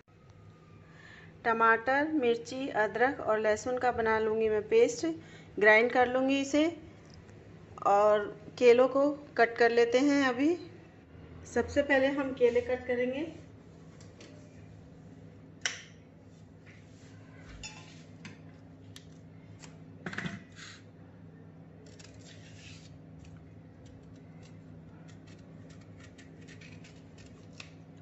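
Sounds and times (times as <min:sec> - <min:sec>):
steady low hum: 0:00.0 - 0:28.0
knife scraping peel: 0:21.8 - 0:27.8.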